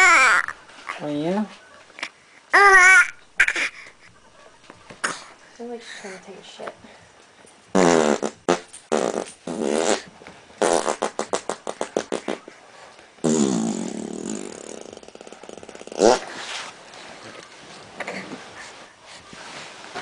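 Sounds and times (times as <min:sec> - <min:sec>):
infant squealing: 0:00.0 - 0:00.6.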